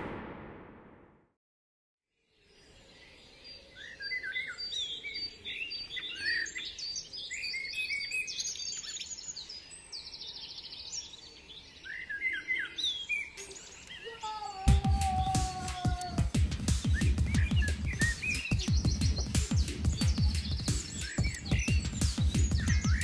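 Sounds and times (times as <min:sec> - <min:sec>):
small birds chirping and singing: 0:02.2 - 0:23.0
bird trill: 0:16.8 - 0:23.0.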